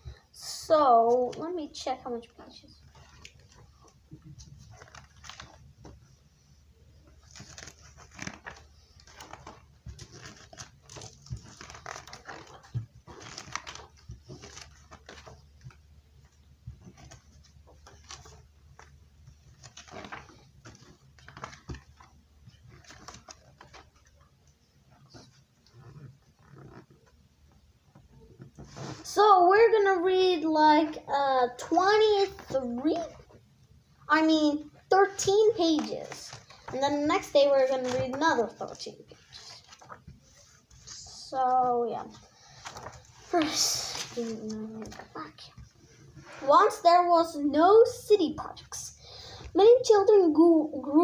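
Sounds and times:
book pages rustling: 2.4 - 29.1, 34.4 - 46.8.

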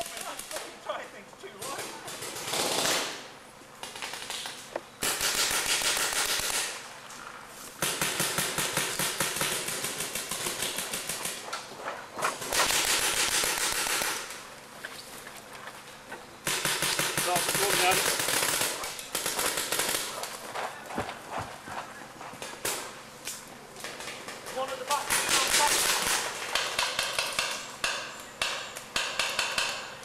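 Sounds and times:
paintball markers firing: 16.4 - 20.3, 23.8 - 30.0.

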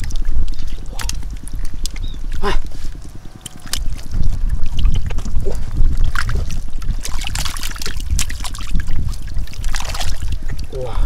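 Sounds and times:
heavy low rumble: 0.0 - 11.0
splashing in muddy water: 0.0 - 11.0.

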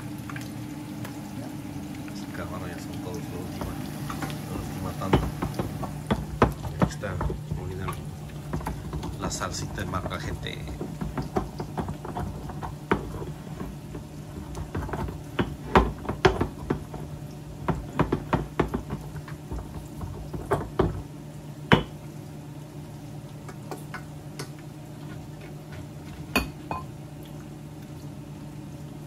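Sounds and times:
steady low hum: 0.0 - 29.0.

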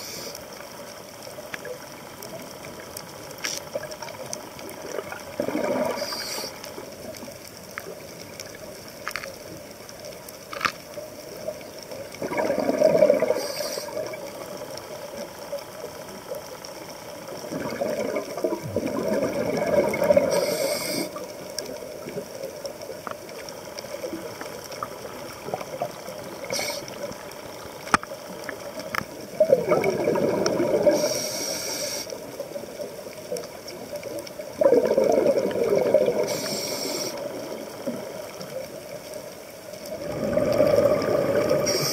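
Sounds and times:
diver breathing through regulator: 13.0 - 14.1, 20.1 - 21.2, 30.8 - 32.2, 36.2 - 37.3, 40.1 - 41.9.

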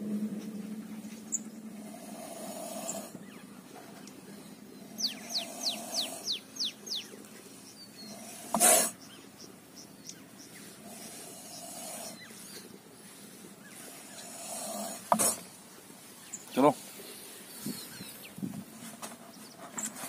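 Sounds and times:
bird chirping: 0.0 - 18.6
snake hissing: 1.7 - 3.2, 4.8 - 6.6, 8.0 - 9.0, 10.6 - 12.6, 13.7 - 15.6
snake striking plastic jar: 15.1 - 15.4.

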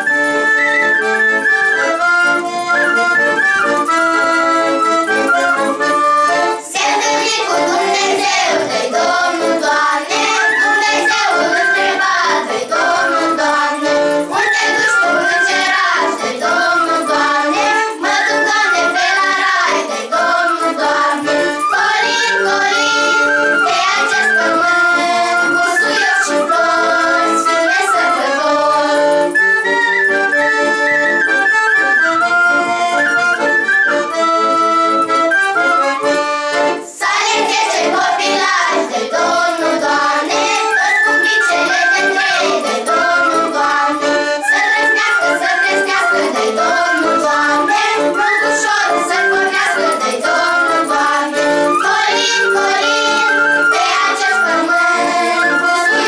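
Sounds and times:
wooden flute: 0.0 - 36.7, 37.9 - 56.0
girls' choir singing: 5.8 - 29.3, 35.8 - 56.0.

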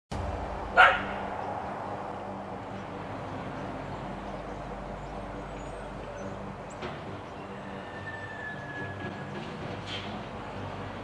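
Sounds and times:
garbage truck diesel engine: 0.1 - 11.0.

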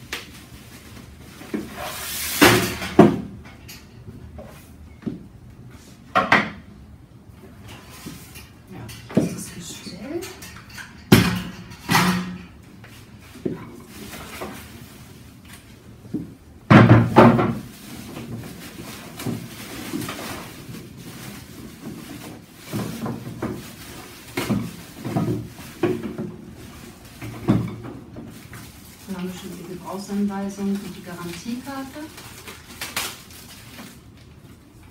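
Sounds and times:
packaging handling noise: 0.0 - 3.2, 12.7 - 16.4, 17.0 - 34.9.

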